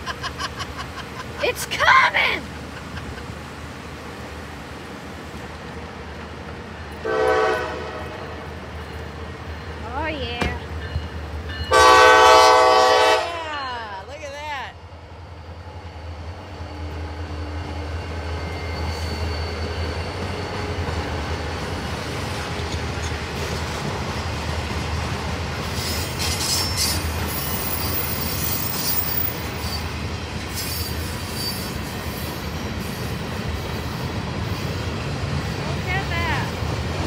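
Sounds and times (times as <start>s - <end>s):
train wheels rumbling on rails: 0.0s - 13.4s, 15.0s - 37.0s
high wheel squeals: 17.9s - 20.8s, 25.8s - 33.2s.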